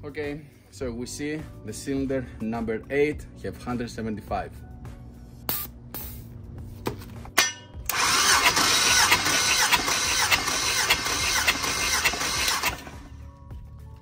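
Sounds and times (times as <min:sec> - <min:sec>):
starter motor cranking engine: 0:07.9 - 0:13.2.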